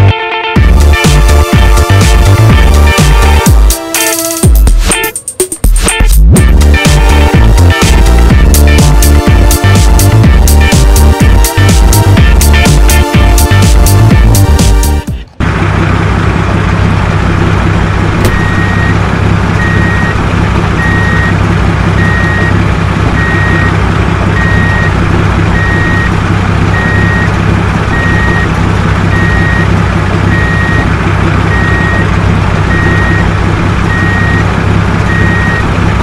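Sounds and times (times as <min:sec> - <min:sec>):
truck engine running: 0:00.0 - 0:36.0
reversing alarm beeping: 0:18.3 - 0:19.0, 0:19.6 - 0:20.2, 0:20.8 - 0:21.4, 0:22.0 - 0:22.6, 0:23.2 - 0:23.7, 0:24.4 - 0:24.9, 0:25.6 - 0:26.1, 0:26.7 - 0:27.3, 0:27.9 - 0:28.5, 0:29.1 - 0:29.7, 0:30.3 - 0:30.9, 0:31.5 - 0:32.1, 0:32.7 - 0:33.3, 0:33.9 - 0:34.5, 0:35.1 - 0:35.7.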